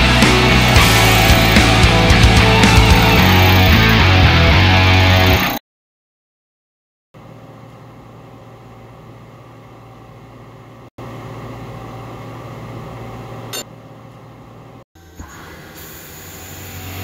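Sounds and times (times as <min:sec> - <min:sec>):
low machine hum: 0:07.2 - 0:17.0.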